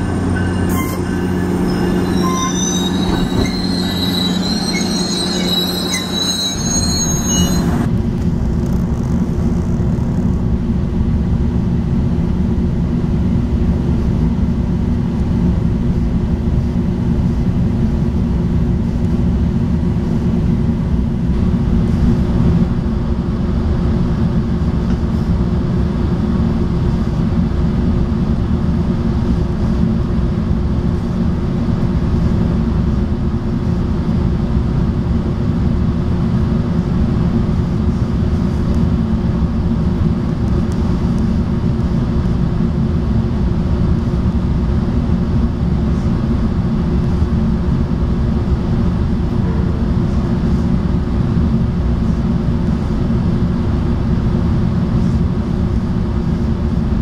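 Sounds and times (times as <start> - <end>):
train wheels squealing: 0.0 - 7.9
train rolling past: 0.0 - 56.9
rumble inside moving train: 0.0 - 57.0.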